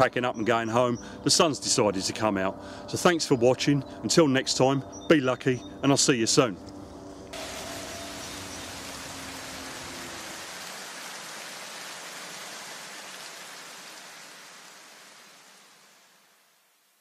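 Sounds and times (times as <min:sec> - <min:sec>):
steady rain-like hiss: 0:07.3 - 0:17.0.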